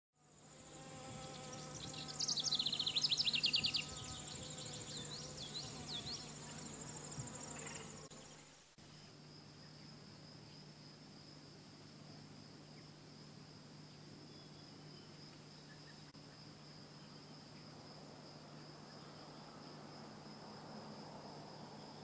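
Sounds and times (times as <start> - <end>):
high insect trill: 0.2 - 22.0
insects buzzing and droning: 0.2 - 22.0.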